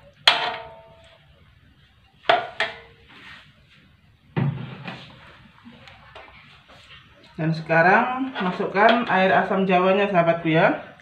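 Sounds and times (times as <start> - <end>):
metal ladle clanging on wok: 0.1 - 1.1, 2.3 - 3.0, 8.4 - 9.5.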